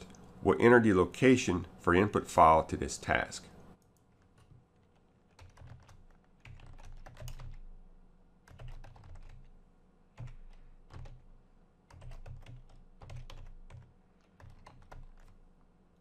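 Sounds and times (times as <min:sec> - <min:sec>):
typing on a computer keyboard: 0:03.8 - 0:07.7, 0:08.4 - 0:09.5, 0:10.2 - 0:11.3, 0:11.9 - 0:15.4.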